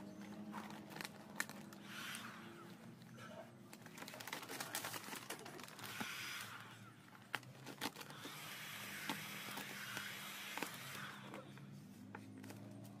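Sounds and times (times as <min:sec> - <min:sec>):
plastic film rustling and crinkling: 0:00.0 - 0:13.0.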